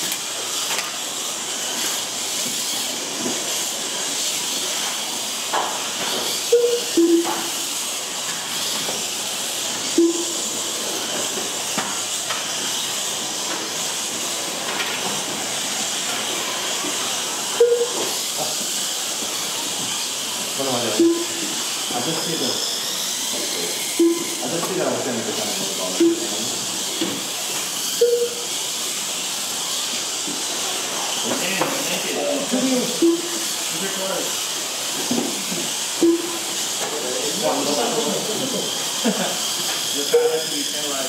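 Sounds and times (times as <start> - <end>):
rc cars electric motor whine: 0.0 - 41.0
short beeps: 6.5 - 7.5, 10.0 - 10.4, 17.6 - 18.0, 21.0 - 21.4, 24.0 - 24.4, 26.0 - 26.4, 28.0 - 28.5, 33.0 - 33.4, 36.0 - 36.4.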